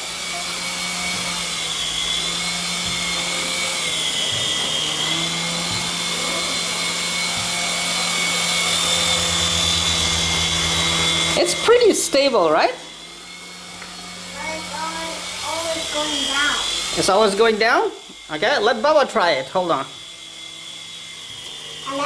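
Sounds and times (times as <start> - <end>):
toy helicopter rotors whirring: 0.0 - 22.0.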